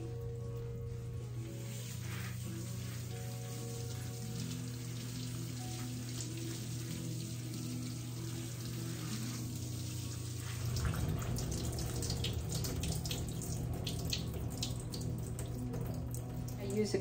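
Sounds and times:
low steady hum: 0:00.0 - 0:17.0
hose water splashing into tub: 0:01.4 - 0:17.0.

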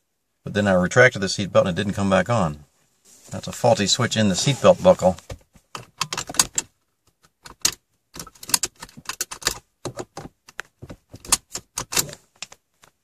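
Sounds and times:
seat belt buckle clicking: 0:05.7 - 0:12.6.

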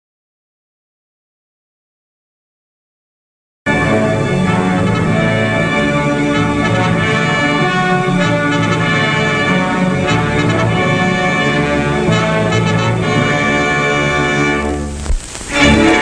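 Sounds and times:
orchestral music with brass: 0:03.7 - 0:16.0.

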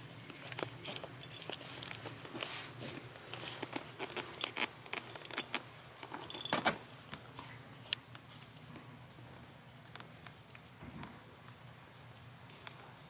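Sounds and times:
fleece blanket rustling: 0:00.8 - 0:04.6.

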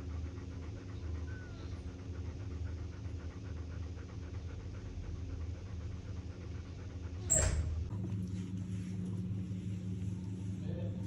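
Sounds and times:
dog panting: 0:00.0 - 0:07.9
steady low hum: 0:00.0 - 0:11.0
faint short squeak: 0:07.2 - 0:07.8.

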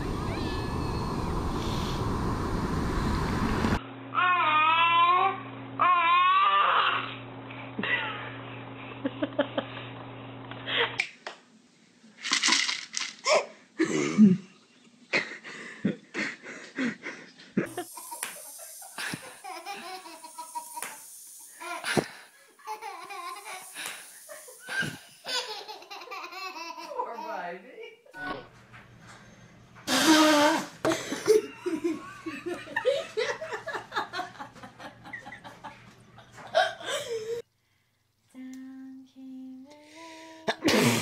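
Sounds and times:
steady low hum: 0:00.0 - 0:04.2
babies giggling and laughing: 0:17.6 - 0:27.5.

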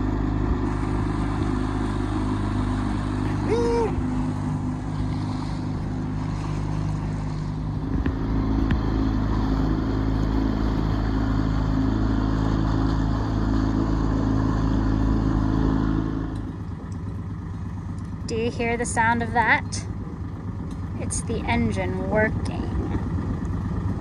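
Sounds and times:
outboard motor running: 0:00.0 - 0:24.0
water noise: 0:00.0 - 0:24.0
wind: 0:00.0 - 0:24.0.

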